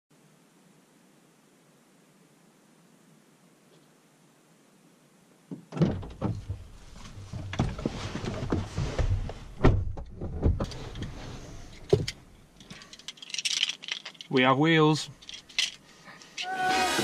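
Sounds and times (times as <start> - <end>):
thumps on car seat and bodywork: 5.5 - 10.7
car door clunk: 5.6 - 11.2
clothing rustling against seat: 6.3 - 13.0.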